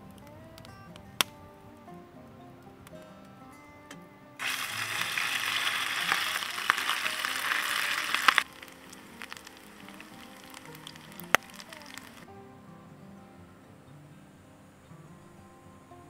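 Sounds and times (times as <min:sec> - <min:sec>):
batter sizzling in hot oil: 0:04.4 - 0:12.2.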